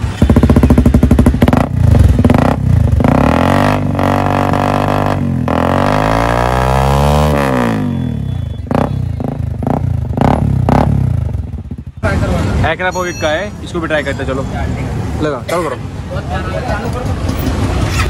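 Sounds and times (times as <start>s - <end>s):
motorcycle engine revving: 0.0s - 12.6s.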